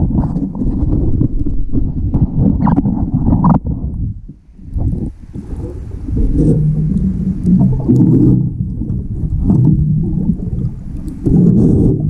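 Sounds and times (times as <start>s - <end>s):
diver exhaling bubbles underwater: 4.8s - 12.0s.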